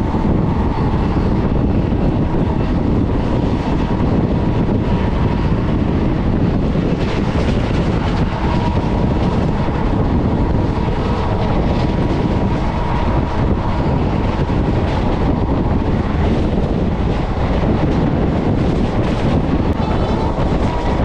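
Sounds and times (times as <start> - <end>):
train wheels rumbling: 0.0 - 21.0
wind buffeting microphone: 0.0 - 21.0.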